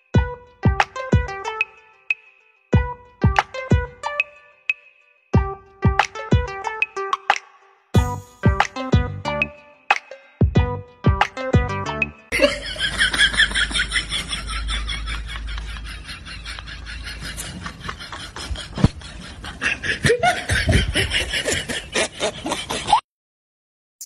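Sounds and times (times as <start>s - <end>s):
person giggling: 12.3s - 23.0s.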